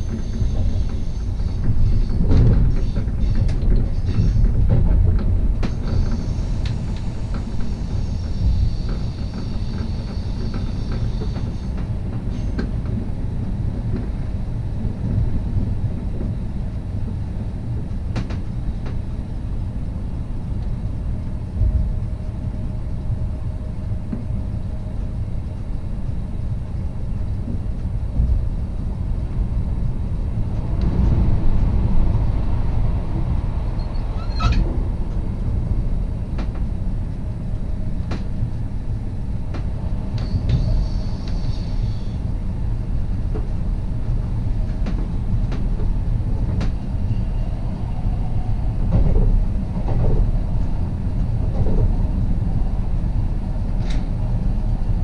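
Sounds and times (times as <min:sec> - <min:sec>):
electric train rumbling: 0:00.0 - 0:55.0.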